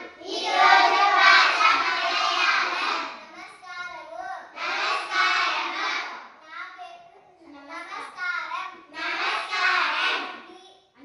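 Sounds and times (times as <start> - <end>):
children chanting in unison: 0.0 - 6.4, 8.9 - 10.5.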